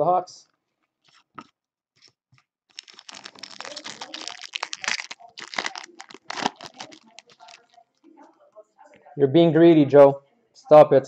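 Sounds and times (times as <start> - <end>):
foil wrapper tearing and crinkling: 2.7 - 7.8.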